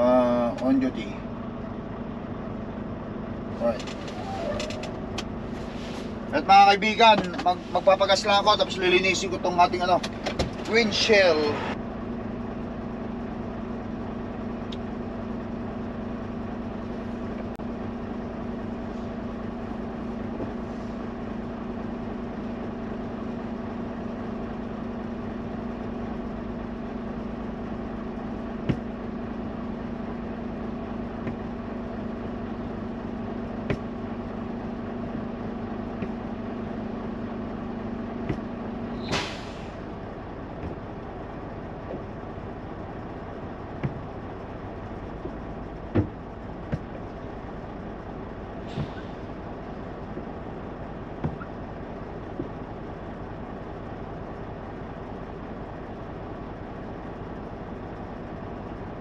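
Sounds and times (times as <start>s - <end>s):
truck engine idling hum: 0.0s - 59.0s
air release hiss: 39.0s - 39.8s.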